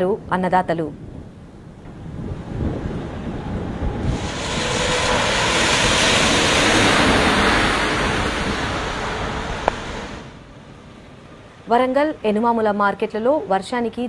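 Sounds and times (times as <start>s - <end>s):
storm wind rushing: 0.9s - 11.4s.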